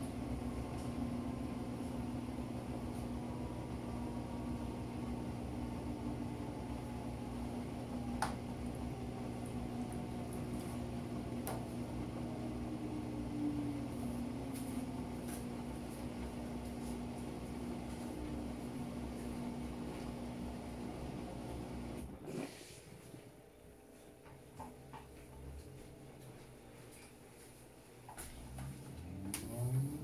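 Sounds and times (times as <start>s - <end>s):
washing machine spinning: 0.0s - 23.1s.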